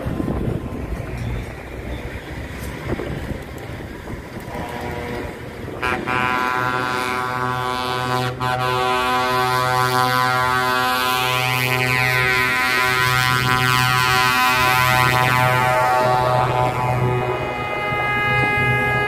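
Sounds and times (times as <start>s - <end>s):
truck passing: 0.0s - 19.0s
loud steady horn chord: 4.5s - 19.0s.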